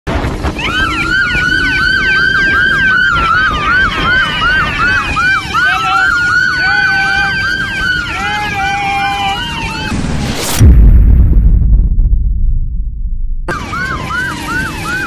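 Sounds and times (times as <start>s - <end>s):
wind and road noise: 0.1s - 15.0s
police siren yelping: 0.3s - 10.0s, 13.5s - 15.0s.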